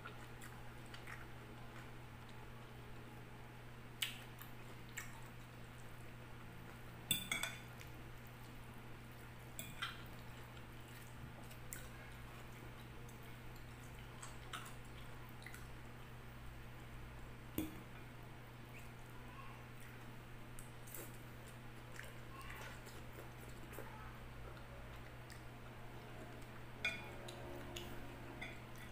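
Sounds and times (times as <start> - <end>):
low steady hum: 0.0 - 28.9.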